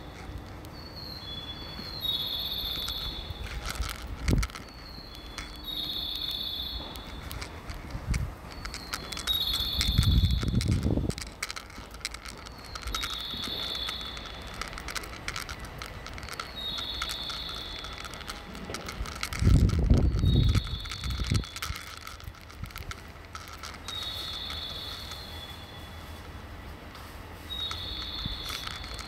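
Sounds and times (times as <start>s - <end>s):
electronic bird chirp signal: 0.9s - 3.5s, 4.7s - 7.2s, 8.7s - 10.6s, 12.6s - 14.6s, 16.4s - 18.1s, 20.0s - 21.6s, 23.9s - 26.0s, 27.5s - 29.0s.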